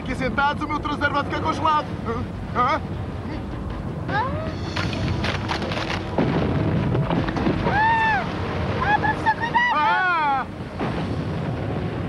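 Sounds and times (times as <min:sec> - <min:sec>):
rumble of rock breaking: 0:04.6 - 0:09.1, 0:10.5 - 0:12.0.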